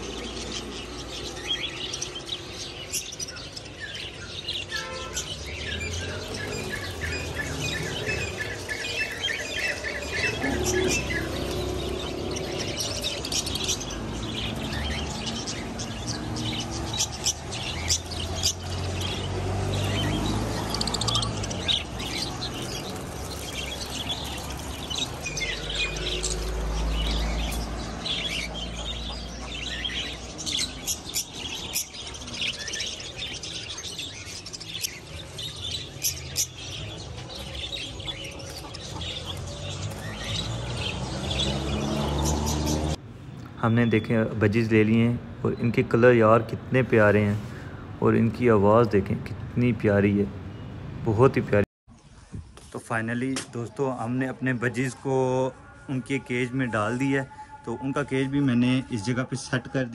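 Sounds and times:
budgerigars chirping: 0.0 - 43.0.

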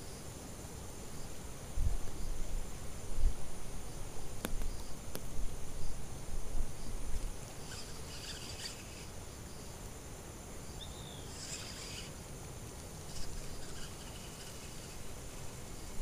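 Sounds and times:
insects buzzing: 0.0 - 16.0
low background noise: 0.0 - 16.0.

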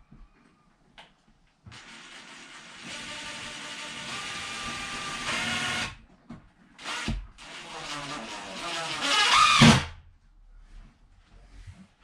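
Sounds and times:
drill driving screw into wood: 1.7 - 6.0, 6.8 - 10.0.

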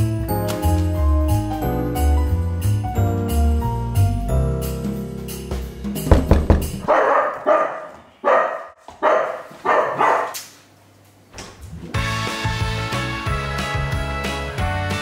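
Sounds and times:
dogs barking: 6.8 - 10.4.

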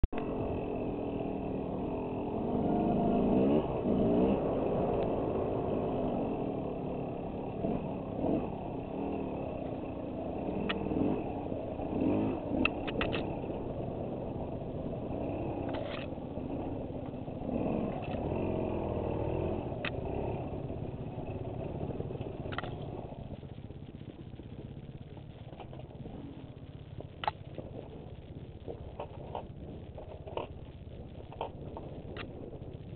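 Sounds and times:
motorcycle engine revving: 0.0 - 32.9
sharp clicks: 12.6 - 13.4, 22.5 - 23.0, 27.0 - 27.9.

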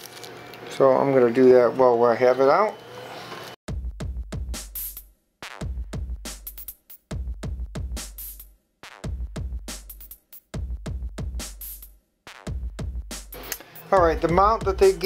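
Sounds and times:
electronic music with drum-machine beat: 3.7 - 15.0.

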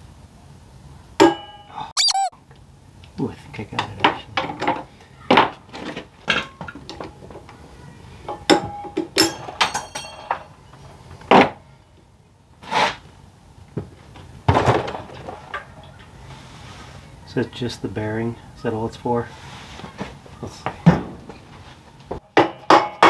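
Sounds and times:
hand tools clinking on metal: 8.6 - 10.5.

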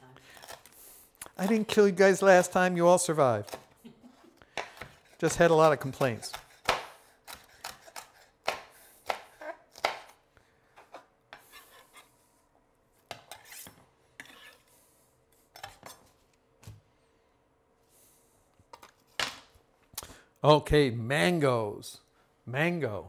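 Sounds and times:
knife chopping on cutting board: 4.6 - 10.2
knife scraping across board: 10.8 - 12.1, 13.1 - 14.7.

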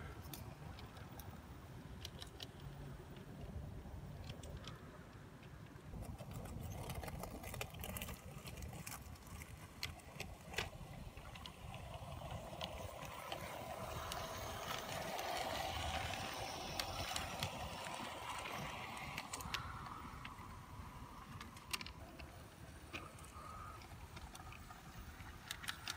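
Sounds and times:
wheels clicking on rails: 0.0 - 25.9
electric motor whine: 12.2 - 20.2.

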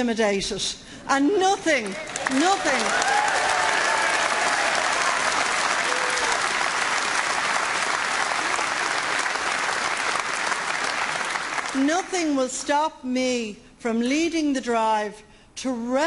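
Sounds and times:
audience applauding: 2.0 - 11.8.

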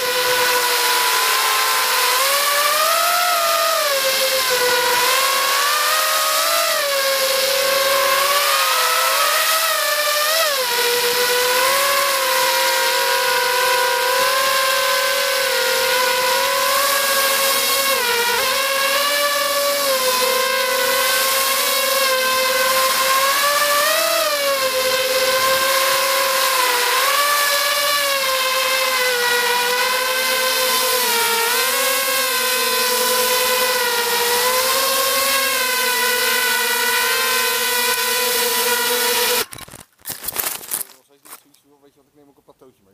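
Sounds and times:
quadcopter motors whining: 0.0 - 39.8.

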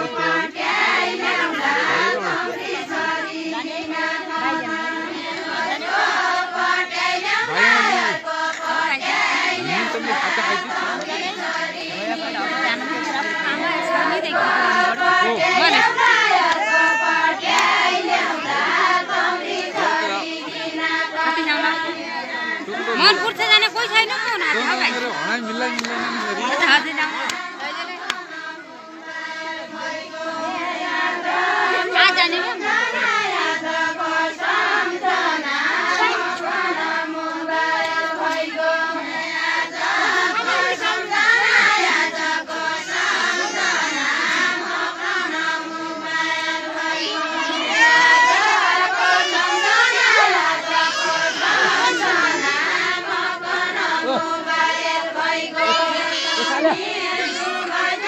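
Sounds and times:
crowd noise: 0.0 - 58.0
women singing together: 0.0 - 58.0.

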